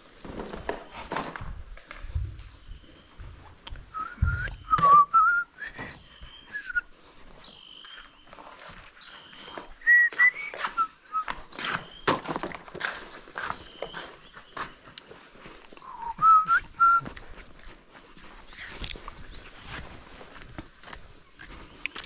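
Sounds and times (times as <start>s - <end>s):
footsteps: 0.0s - 22.0s
person whistling a tune: 3.9s - 6.9s, 9.8s - 11.3s, 15.8s - 17.1s.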